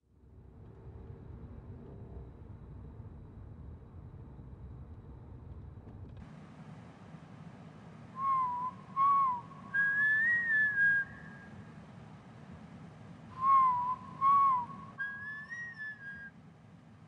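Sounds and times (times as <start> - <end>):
person whistling a slow tune: 8.2 - 11.3, 13.4 - 16.3.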